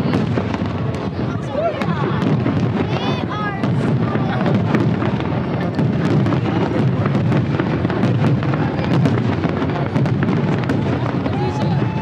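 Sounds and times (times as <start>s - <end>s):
fireworks cracking and crackling: 0.0s - 12.0s
low rumble of booms: 0.0s - 12.0s.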